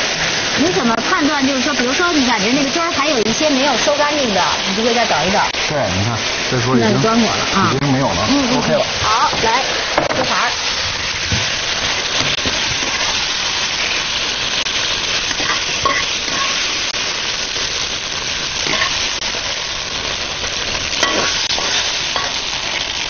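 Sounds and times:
vegetables sizzling in hot oil: 0.0s - 23.0s
metal spatula scraping wok: 15.3s - 16.8s, 18.6s - 19.2s, 20.8s - 23.0s.

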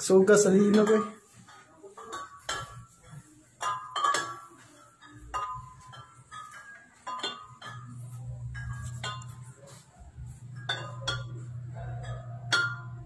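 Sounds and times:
chandelier glass pendants clinking: 0.0s - 13.0s.

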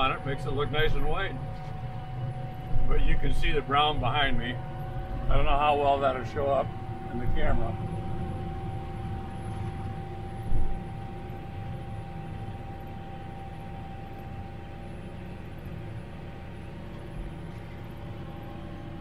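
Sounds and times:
tractor engine drone: 0.0s - 19.0s.

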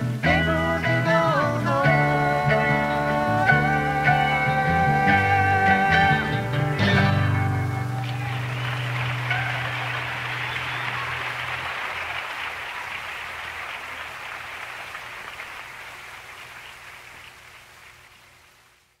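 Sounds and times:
audience applauding: 6.8s - 19.0s.

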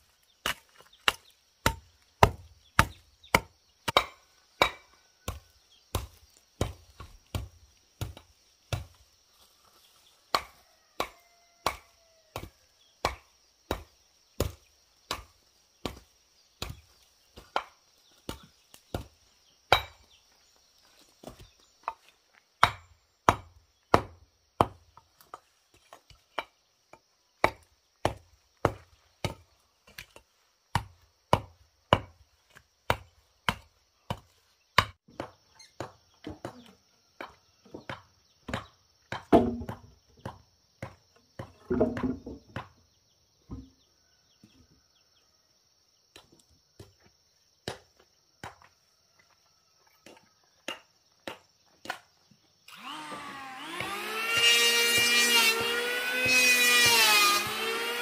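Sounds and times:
hammer striking bricks: 0.4s - 9.0s, 22.6s - 24.8s
wooden beams knocking: 32.9s - 42.8s
power tool whine: 52.7s - 58.0s.

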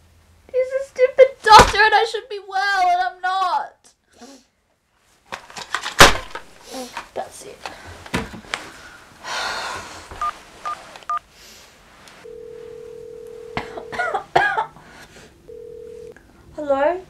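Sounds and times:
phone-line tone: 12.2s - 13.9s, 15.5s - 16.2s.

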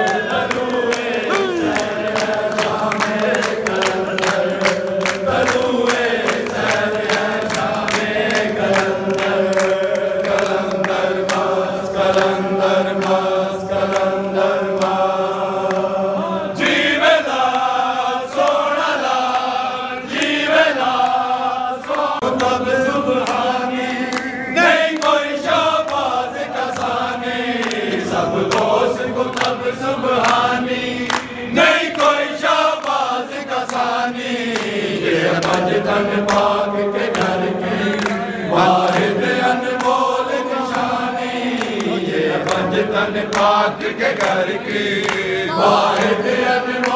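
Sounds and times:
man chanting into a microphone: 0.0s - 6.0s
crowd of men chanting: 0.0s - 46.9s.

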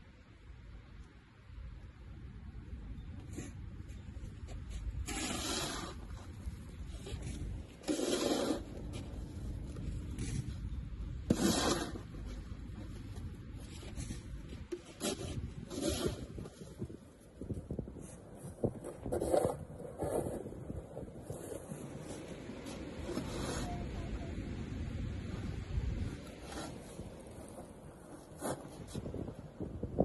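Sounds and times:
snow shovel scraping snow: 4.7s - 10.6s, 11.2s - 13.0s, 13.6s - 17.0s, 21.2s - 23.8s, 26.0s - 27.6s, 28.2s - 29.2s.

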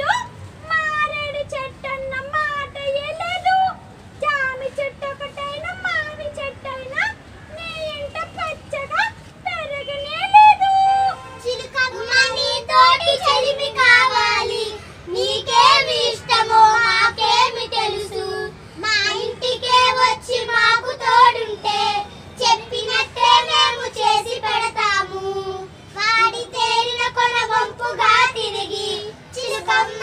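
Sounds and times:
children singing: 26.3s - 30.0s.

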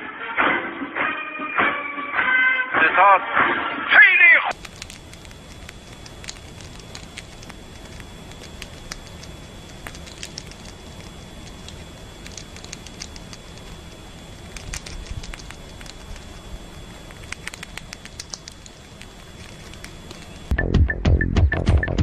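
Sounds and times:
squirrel chewing fruit: 4.5s - 20.5s
steady low hum: 4.5s - 22.0s.

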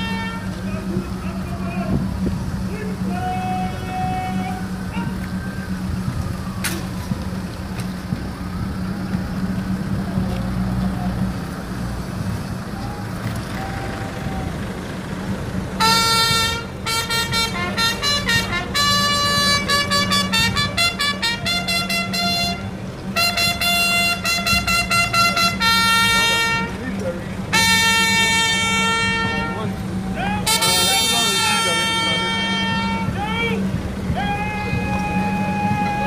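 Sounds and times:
vehicle engine idling: 0.0s - 36.0s
bugle call: 15.8s - 26.8s, 27.5s - 36.0s.

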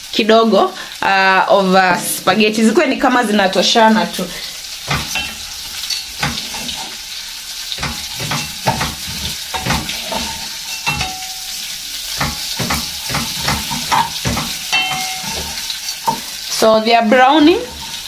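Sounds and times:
pasta sizzling in a pan: 0.0s - 18.0s
wooden spoon scraping a pan: 4.2s - 7.1s, 7.7s - 18.0s.

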